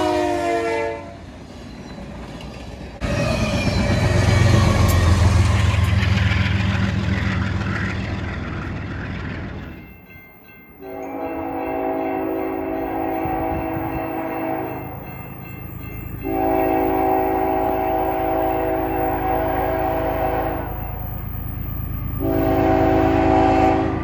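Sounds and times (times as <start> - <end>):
train air horn blasts: 0.0 - 1.2, 9.8 - 24.0
freight train rumbling past: 0.0 - 24.0.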